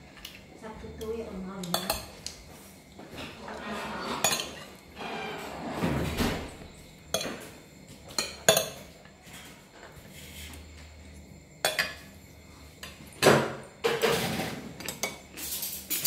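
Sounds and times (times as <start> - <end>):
cutlery clinking on plates: 3.3 - 4.8, 7.1 - 9.0, 11.6 - 12.1.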